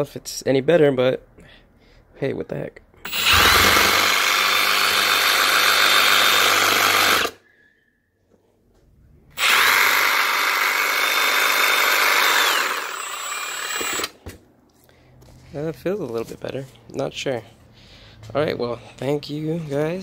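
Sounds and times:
reciprocating saw running: 3.1 - 7.4, 9.4 - 14.1.

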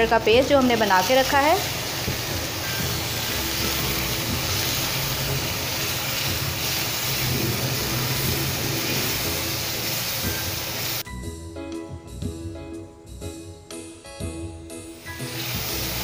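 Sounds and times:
background music: 0.0 - 16.0
paste sizzling in a frying pan: 0.1 - 11.0, 14.8 - 16.0.

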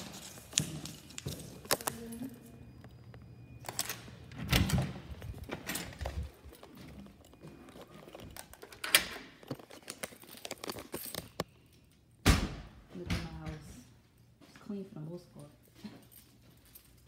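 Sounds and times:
keys jingling and rustling: 0.0 - 12.0, 15.5 - 17.0.

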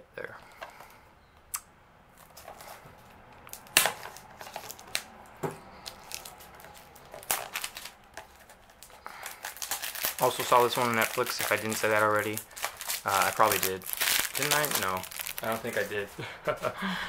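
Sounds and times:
plastic shrink wrap crackling: 3.5 - 5.1, 5.8 - 16.2.

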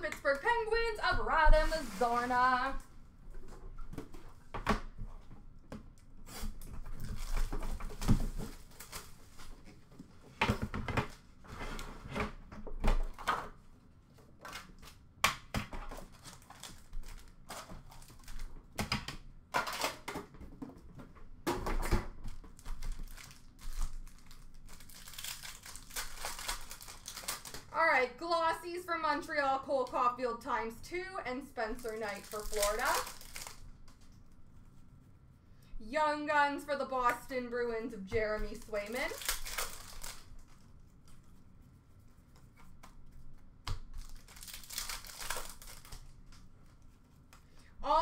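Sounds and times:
cards and wrappers crinkling: 16.0 - 18.6, 22.3 - 27.7, 31.7 - 34.1, 38.4 - 41.2, 43.8 - 46.8.

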